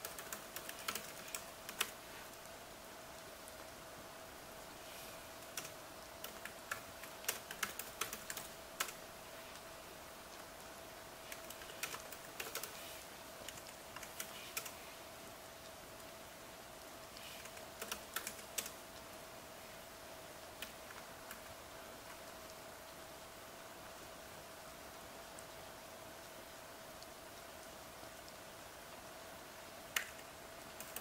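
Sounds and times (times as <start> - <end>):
laptop keyboard typing: 0.0 - 2.0, 5.5 - 9.0, 11.2 - 14.8, 17.2 - 18.8, 30.0 - 31.0.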